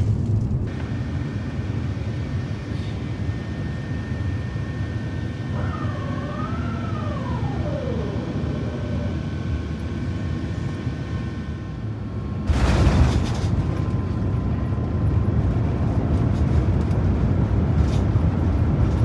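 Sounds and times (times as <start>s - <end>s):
airliner cabin rumble: 0.0s - 19.0s
faint whining tone: 0.7s - 12.4s.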